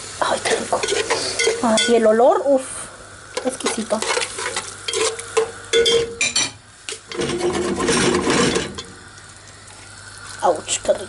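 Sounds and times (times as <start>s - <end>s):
metal spoon scraping metal pot: 7.1s - 8.8s.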